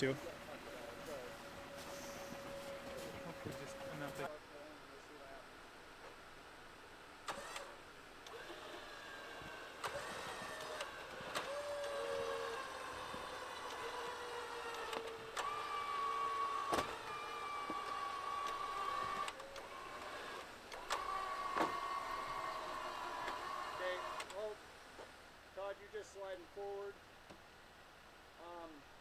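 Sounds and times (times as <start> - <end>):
electric winch motor whining: 0.0 - 4.3, 7.3 - 24.5
sharp clicks: 24.0 - 24.4.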